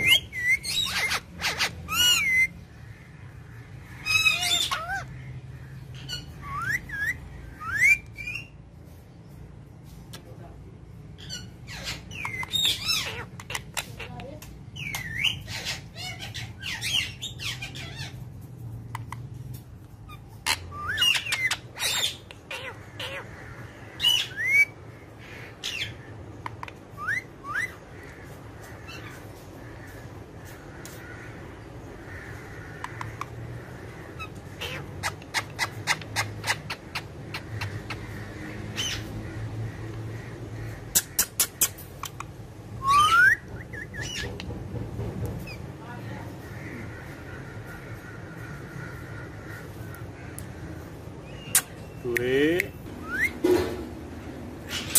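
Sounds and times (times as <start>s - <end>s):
parakeets squawking: 0.0s - 9.0s, 10.1s - 44.7s, 45.3s - 54.9s
parakeet rising whistles: 42.8s - 44.0s, 53.0s - 53.4s.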